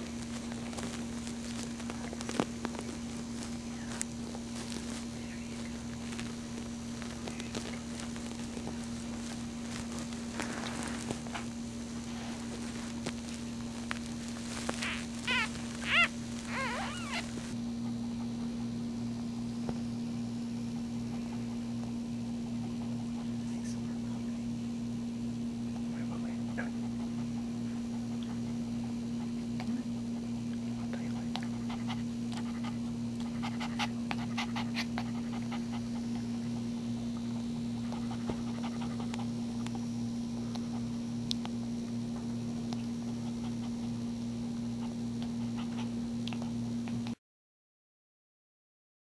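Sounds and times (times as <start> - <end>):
low electrical hum: 0.0 - 47.2
puppy suckling wet clicks: 45.2 - 47.2.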